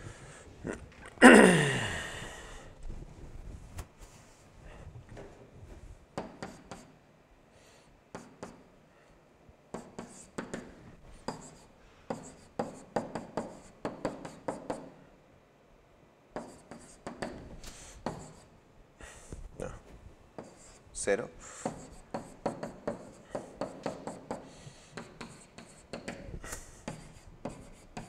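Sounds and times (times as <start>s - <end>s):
stylus tapping and scratching: 20.4s - 20.8s, 21.6s - 28.0s.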